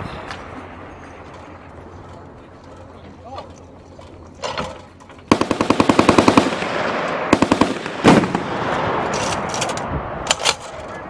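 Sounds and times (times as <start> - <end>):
heavy machine gun bursts: 5.3 - 8.6.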